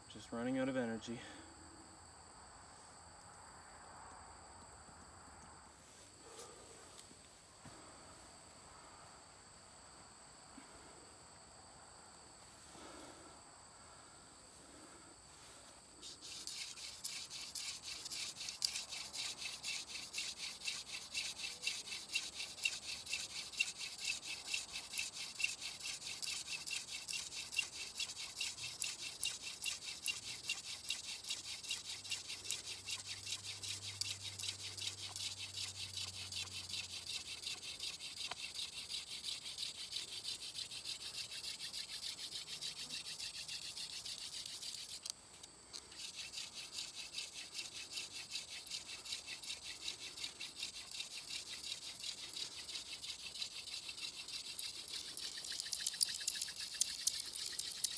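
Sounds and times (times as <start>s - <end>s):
wooden spindle rubbing on wood: 16.0s - 45.1s, 45.8s - 57.9s.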